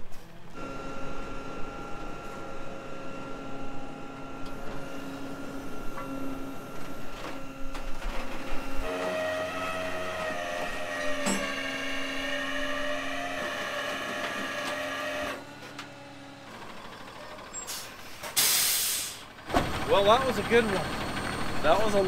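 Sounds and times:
hydraulics whining: 0:00.0 - 0:22.0
air hiss: 0:18.4 - 0:19.3.

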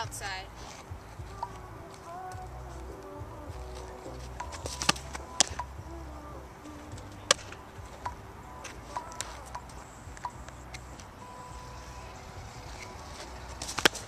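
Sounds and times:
ball popping into glove: 0:04.4 - 0:05.7, 0:13.6 - 0:14.0.

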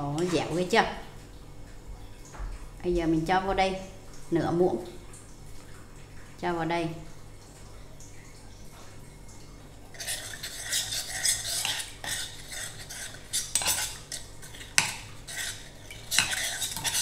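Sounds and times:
metal spoon scraping clay pot: 0:10.0 - 0:17.0.

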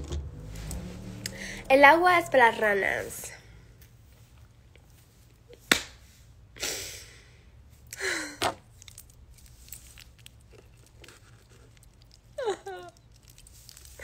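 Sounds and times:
person exhaling: 0:01.2 - 0:01.7.

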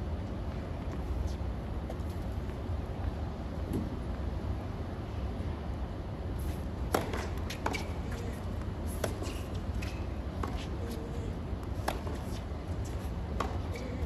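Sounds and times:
tennis ball hits and bounces: 0:06.9 - 0:08.0, 0:11.7 - 0:14.0.

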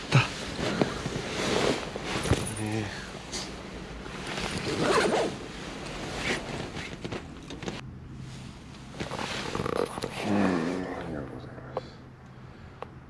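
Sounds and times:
fabric rustling: 0:00.0 - 0:10.0
zipper-like rasps: 0:04.4 - 0:05.4.

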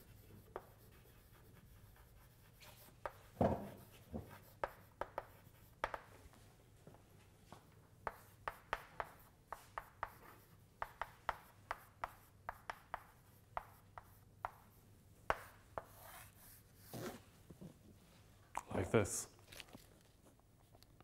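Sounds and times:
chalk writing on blackboard: 0:00.0 - 0:06.3, 0:08.0 - 0:17.2.

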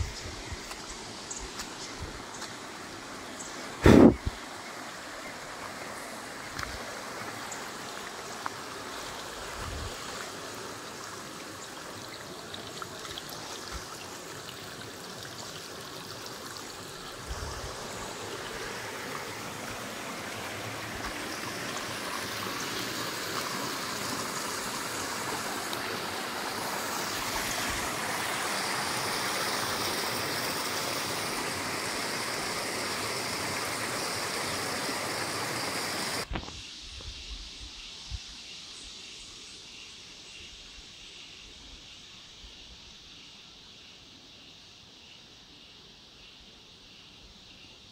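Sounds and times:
stream water rushing over drop: 0:00.0 - 0:36.7.

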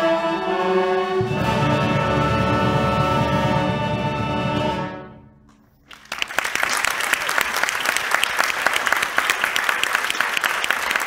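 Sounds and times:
band chord: 0:00.0 - 0:05.5
audience applauding: 0:05.8 - 0:11.0.

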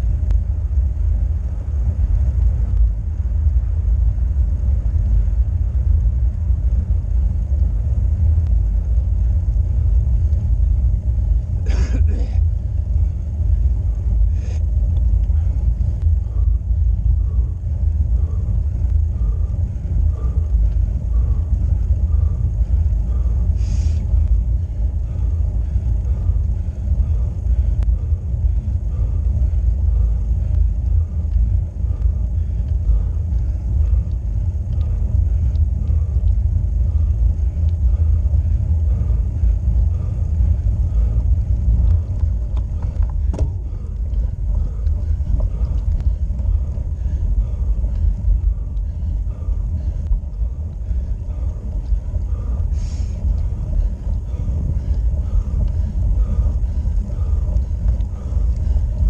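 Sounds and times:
wind buffeting and road rumble: 0:00.0 - 0:59.0
faint regular ticking: 0:12.6 - 0:59.0.

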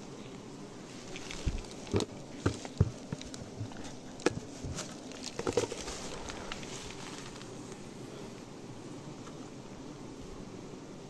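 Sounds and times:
honeybees buzzing: 0:00.0 - 0:11.0
rustling in dry leaves: 0:00.8 - 0:08.0.

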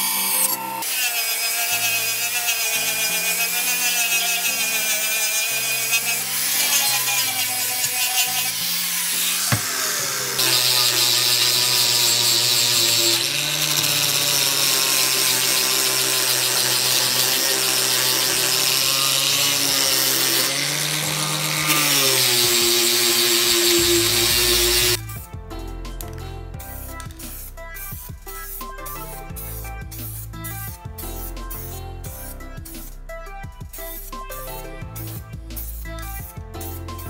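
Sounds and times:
angle grinder motor whine: 0:00.0 - 0:25.0.

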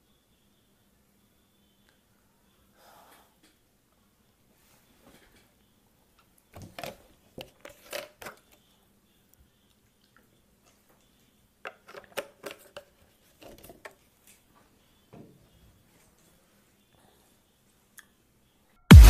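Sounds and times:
plastic bottle clicks and crackles: 0:06.6 - 0:08.5, 0:11.7 - 0:14.0.

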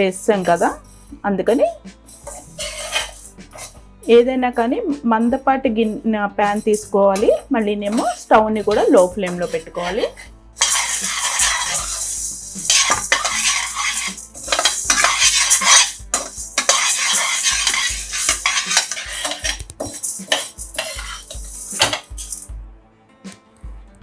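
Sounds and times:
ladle scraping lentils in metal pan: 0:02.0 - 0:04.2, 0:05.9 - 0:22.5
grains rattling against metal: 0:02.1 - 0:03.3, 0:07.8 - 0:22.5.

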